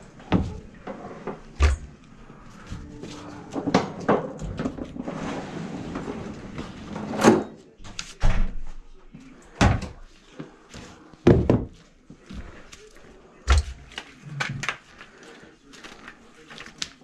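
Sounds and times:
rustling and handling noise: 0:11.8 - 0:17.0.

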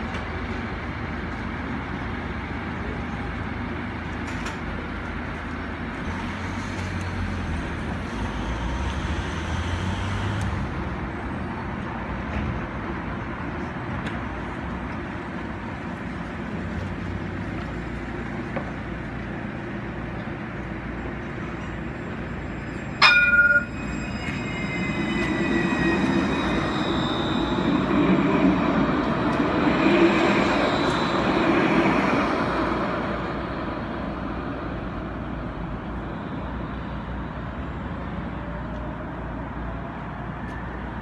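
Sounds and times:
street background: 0:00.0 - 0:41.0
tram rumbling on rails: 0:00.0 - 0:41.0
tram warning bell: 0:20.9 - 0:29.8.

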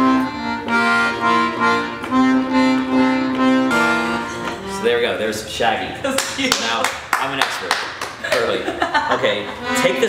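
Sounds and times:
accordion playing simple melody: 0:00.0 - 0:05.4, 0:09.5 - 0:10.0.

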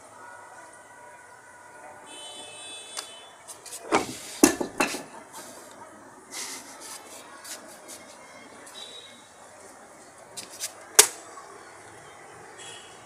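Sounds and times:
sharp knocks and clatters: 0:03.9 - 0:05.2.

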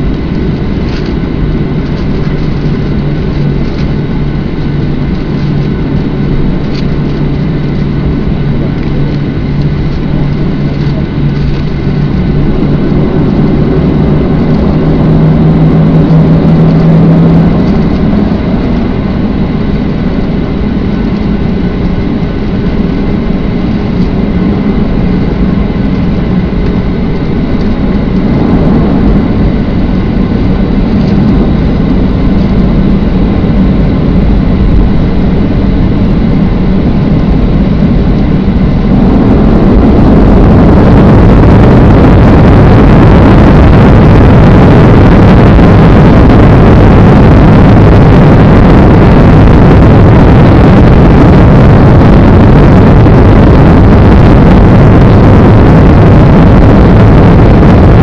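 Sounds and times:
jet engines rumbling: 0:00.0 - 0:58.0
low hum: 0:00.0 - 0:58.0.

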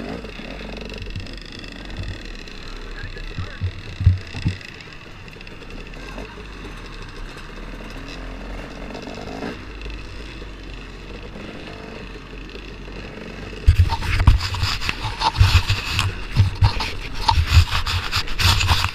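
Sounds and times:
camera handling thumps and rubs: 0:03.1 - 0:04.7, 0:13.6 - 0:18.9.

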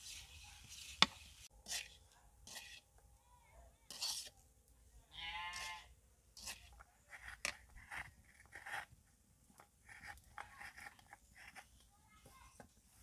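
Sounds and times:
metal spatula scraping a pan: 0:00.0 - 0:02.9, 0:03.9 - 0:04.4, 0:05.5 - 0:08.9.

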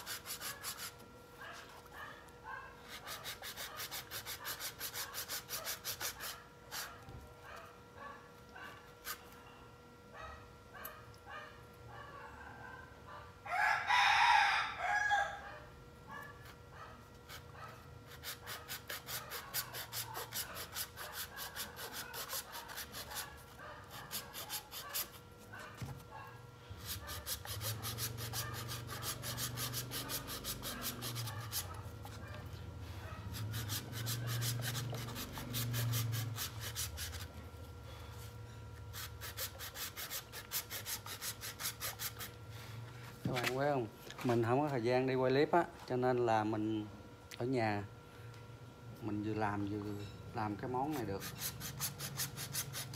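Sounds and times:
hacksaw sawing coconut shell: 0:00.0 - 0:01.0, 0:02.9 - 0:06.9, 0:18.1 - 0:23.3, 0:23.9 - 0:25.2, 0:26.8 - 0:31.8, 0:33.3 - 0:37.3, 0:38.9 - 0:42.4, 0:50.9 - 0:52.9
rooster crowing: 0:13.4 - 0:15.6.

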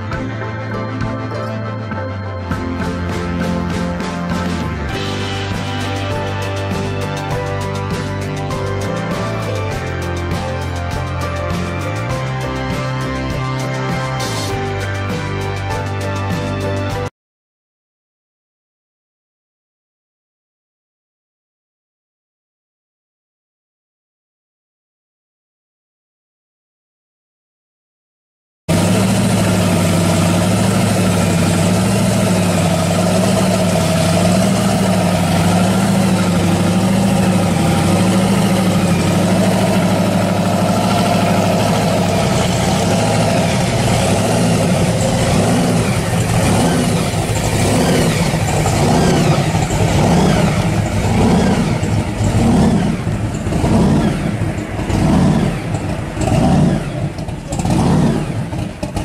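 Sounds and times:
engine throttle blips: 0:00.0 - 0:16.2, 0:28.7 - 0:59.0
car engine idling unevenly: 0:28.7 - 0:59.0.

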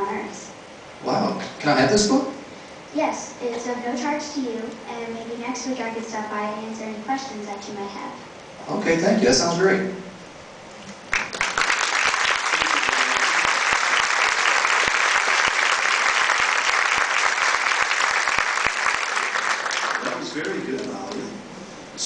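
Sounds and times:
audience applauding: 0:11.1 - 0:21.3.

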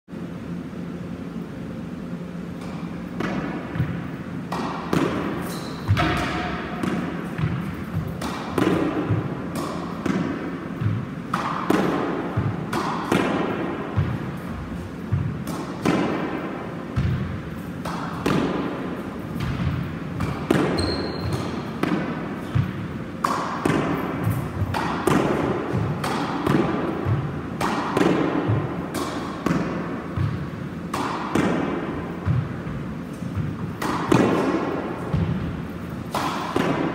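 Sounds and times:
racket striking squash ball: 0:02.6 - 0:36.9
sports shoes squeaking: 0:05.4 - 0:06.5, 0:20.6 - 0:21.8.

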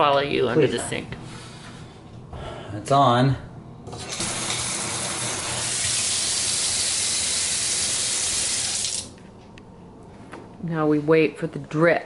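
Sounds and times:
faucet water running into sink: 0:03.9 - 0:09.1.

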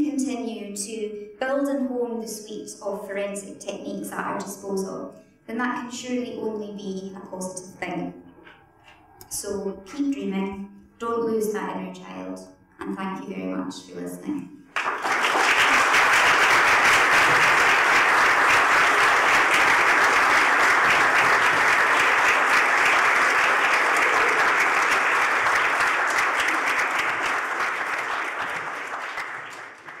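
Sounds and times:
audience applauding: 0:14.7 - 0:30.0.

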